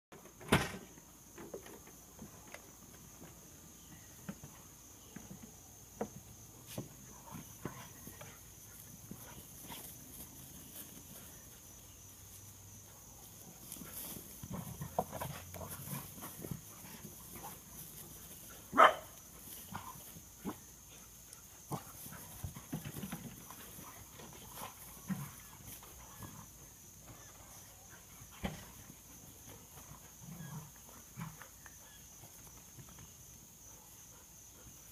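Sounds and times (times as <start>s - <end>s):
dog barking: 18.7s - 19.1s.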